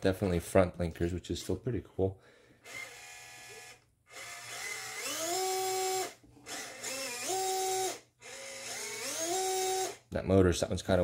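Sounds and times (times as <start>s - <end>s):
toy car motor whining: 2.7s - 10.0s.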